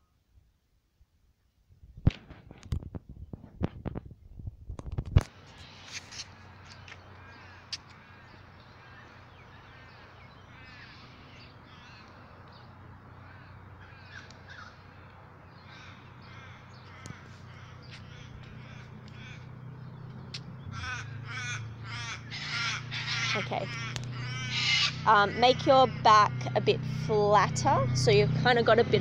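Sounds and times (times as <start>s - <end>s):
birds harsh cries: 5.6s - 28.3s.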